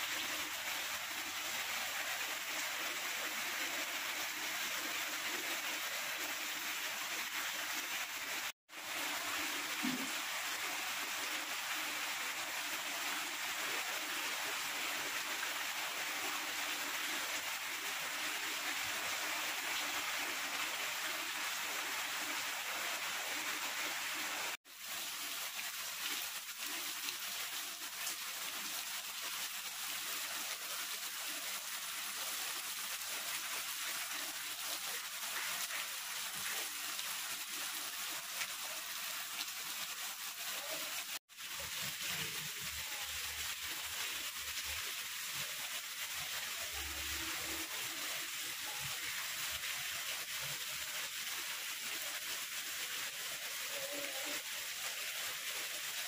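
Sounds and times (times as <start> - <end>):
rain on leaves: 0.0 - 56.0.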